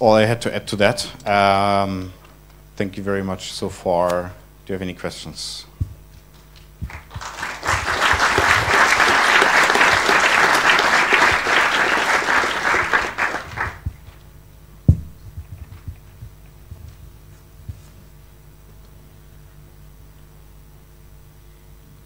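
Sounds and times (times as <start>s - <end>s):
audience applauding: 6.9s - 13.9s
low thump: 14.8s - 16.0s.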